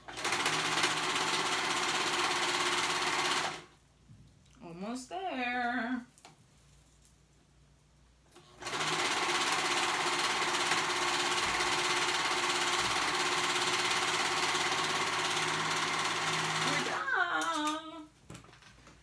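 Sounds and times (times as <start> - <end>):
overlock sewing machine running: 0.0 - 3.7, 8.6 - 17.0.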